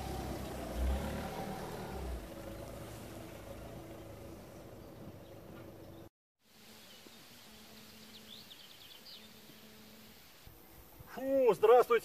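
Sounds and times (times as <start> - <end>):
van engine running: 0.0 - 6.1.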